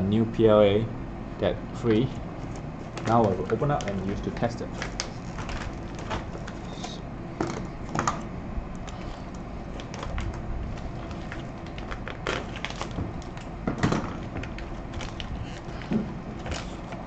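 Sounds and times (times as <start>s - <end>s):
plastic bag crinkling: 2.4s - 6.9s, 8.9s - 13.5s, 14.2s - 17.0s.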